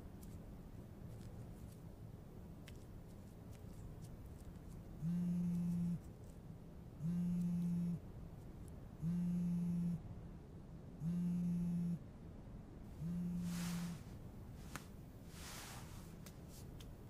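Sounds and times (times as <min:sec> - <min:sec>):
phone buzzing on vibrate: 0:05.0 - 0:06.0, 0:07.0 - 0:08.0, 0:09.0 - 0:10.0, 0:11.0 - 0:12.0, 0:13.0 - 0:14.1.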